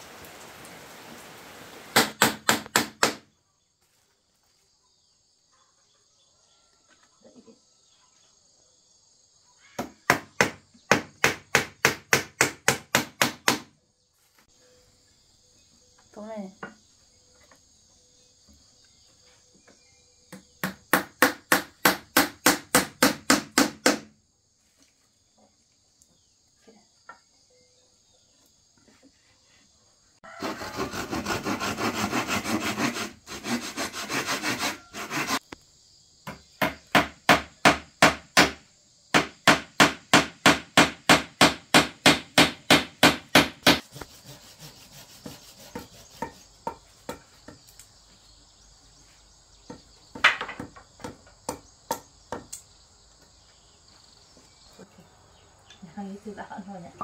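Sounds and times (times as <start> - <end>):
continuous scraping on wood: 28.2 - 35.6, 43.4 - 52.5
hand tool strokes on wood: 29.1 - 35.5, 43.7 - 47.2.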